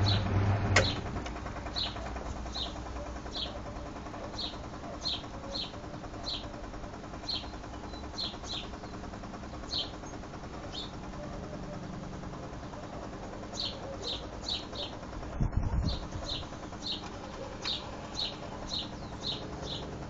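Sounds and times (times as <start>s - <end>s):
washing machine drain pump humming: 0.0s - 20.0s.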